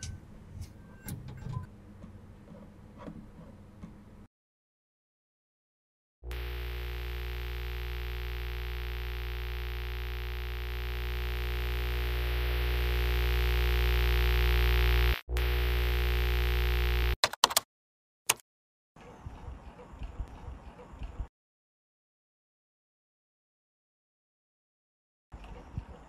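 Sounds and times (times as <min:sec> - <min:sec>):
deep synthesized drone: 0:06.2 - 0:17.2
glitchy stutters: 0:06.2 - 0:17.2.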